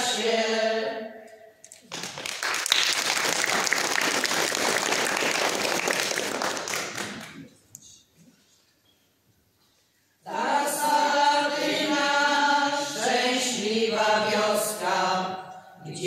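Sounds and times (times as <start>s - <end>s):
audience applauding: 1.8s - 7.5s.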